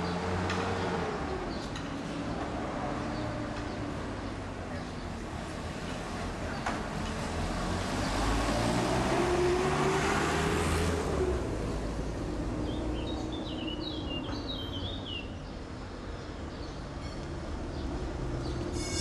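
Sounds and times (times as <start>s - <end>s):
street noise: 0.0s - 19.0s
motor vehicle passing close by: 7.2s - 13.0s.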